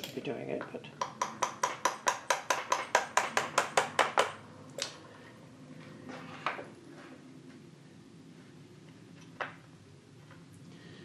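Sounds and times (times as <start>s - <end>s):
hammer tapping on steel shaft: 1.0s - 4.4s.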